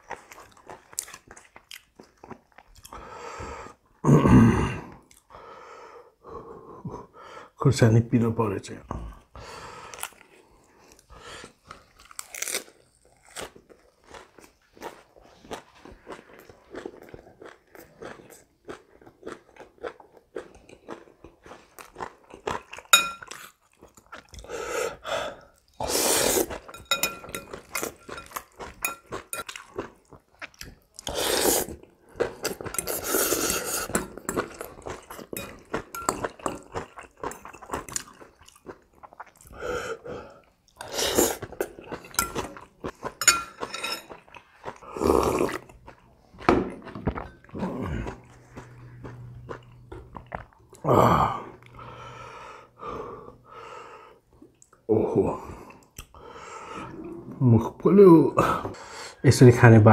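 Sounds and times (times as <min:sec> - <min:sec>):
wet chewing and crunching: 0:00.0 - 0:03.0, 0:09.8 - 0:39.6, 0:40.3 - 0:50.9
utensils clinking in glass bowl: 0:22.9 - 0:23.4, 0:26.6 - 0:29.6, 0:33.8 - 0:36.9, 0:41.9 - 0:44.4
loud slurps of soup: 0:25.8 - 0:26.6, 0:31.0 - 0:31.8.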